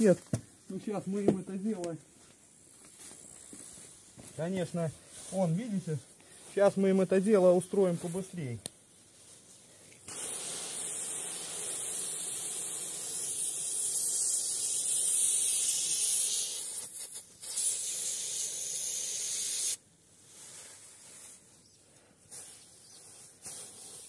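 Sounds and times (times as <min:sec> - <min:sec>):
aerosol can hissing: 0:10.0 - 0:19.8, 0:22.3 - 0:24.0.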